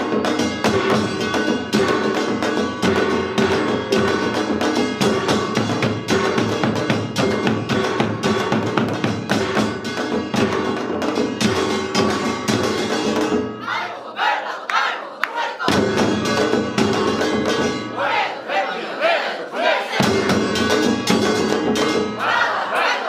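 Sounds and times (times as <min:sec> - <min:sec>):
barrel drums playing: 0:00.0 - 0:13.7, 0:15.7 - 0:18.4, 0:20.0 - 0:22.7
hourglass drums playing: 0:00.0 - 0:13.7, 0:15.7 - 0:18.4, 0:20.0 - 0:22.7
people shouting: 0:13.6 - 0:15.7, 0:17.9 - 0:20.1, 0:22.2 - 0:23.0.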